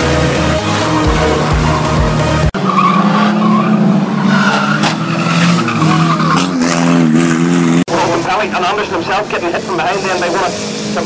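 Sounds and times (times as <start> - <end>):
music: 0.0 - 2.6
race car engines droning: 0.0 - 11.0
tyres squealing and skidding: 0.0 - 11.0.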